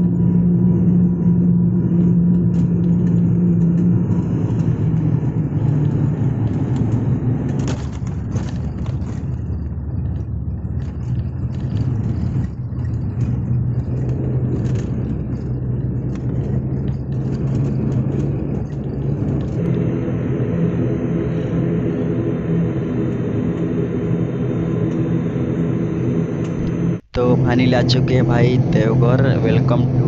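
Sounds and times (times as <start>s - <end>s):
low engine drone: 0.0s - 30.0s
wheels rumbling on runway: 0.0s - 30.0s
rattles and knocks: 1.8s - 19.8s.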